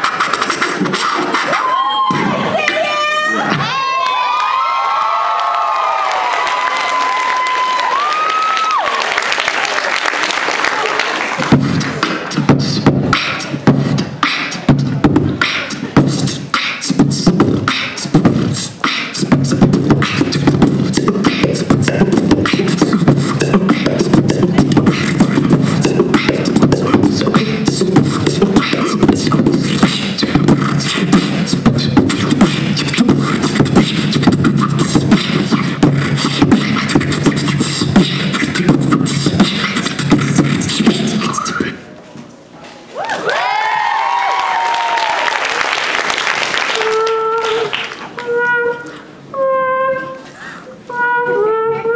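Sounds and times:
beatbox vocal percussion: 0.0s - 3.7s, 11.4s - 41.9s, 46.2s - 51.9s
low vocal bass: 11.4s - 41.8s.

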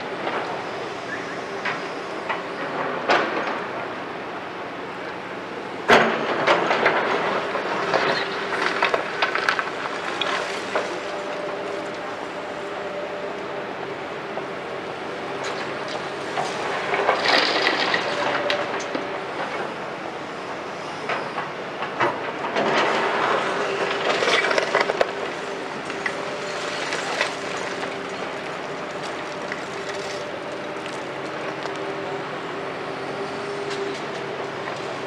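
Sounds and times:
excavator diesel engine: 0.0s - 35.0s.

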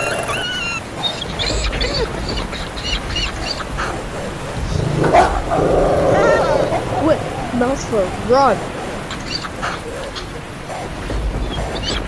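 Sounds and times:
high-pitched animal yelps: 0.0s - 2.2s, 5.0s - 7.6s.

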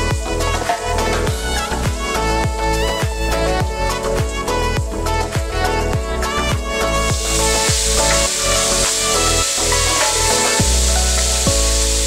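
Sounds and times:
background music with sustained notes: 0.0s - 12.0s.

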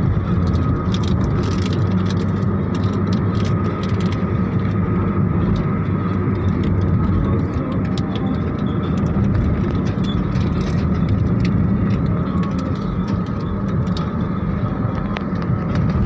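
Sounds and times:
car road and engine noise: 0.0s - 16.0s
light clicks and rattles: 5.4s - 16.0s.

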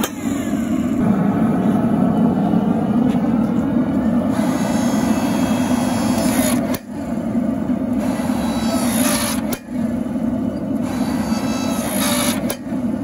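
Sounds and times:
hydraulic press engine running: 0.0s - 13.0s.

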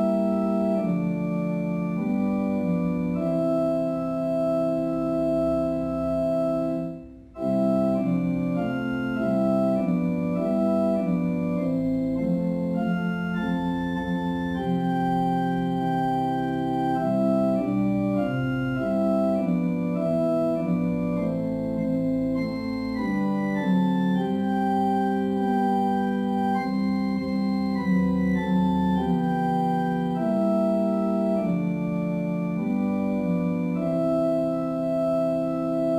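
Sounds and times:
organ playing a hymn: 0.0s - 35.9s.

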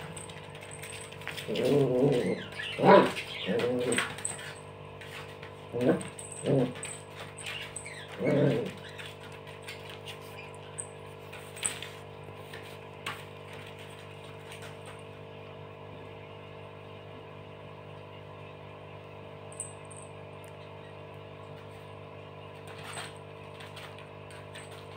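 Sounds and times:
electric fan humming: 0.0s - 24.9s.

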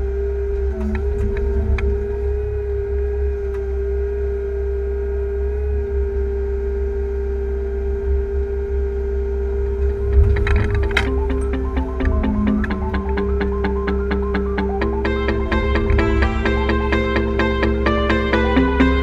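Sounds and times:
hydraulic whining tone: 0.2s - 4.4s, 9.5s - 19.0s
excavator diesel engine running: 0.5s - 4.0s, 9.6s - 19.0s.

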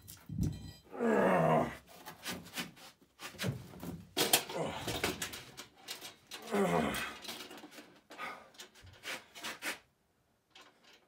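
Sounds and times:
man groaning: 0.9s - 1.8s, 4.4s - 5.2s, 6.4s - 7.2s
man grunting and breathing hard: 4.5s - 5.2s, 6.4s - 7.3s.

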